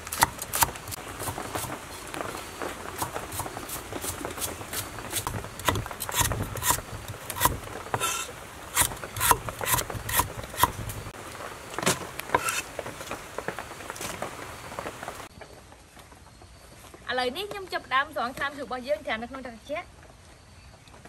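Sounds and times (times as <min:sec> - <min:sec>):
knife chopping on wooden board: 0:00.0 - 0:01.8, 0:05.2 - 0:10.8.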